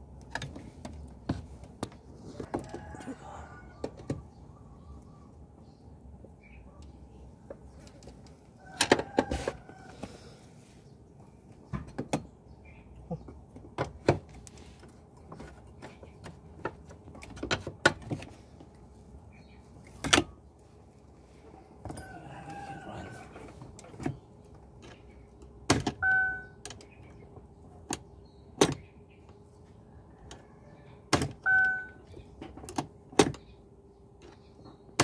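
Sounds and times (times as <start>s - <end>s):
short steady beep: 26.0s - 26.6s, 31.5s - 32.0s.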